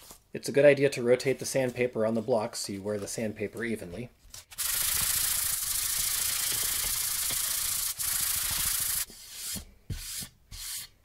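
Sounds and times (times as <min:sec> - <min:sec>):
sandpaper scratching on wood: 0:04.6 - 0:10.9.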